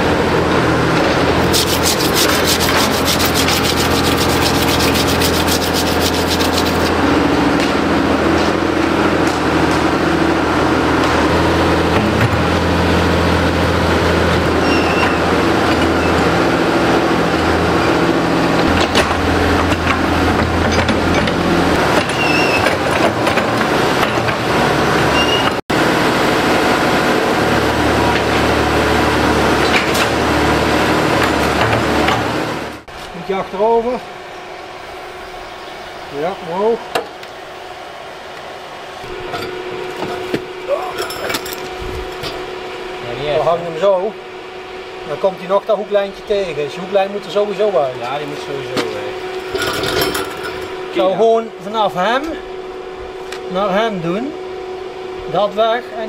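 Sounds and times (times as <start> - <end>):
engine running: 0.0 - 32.9.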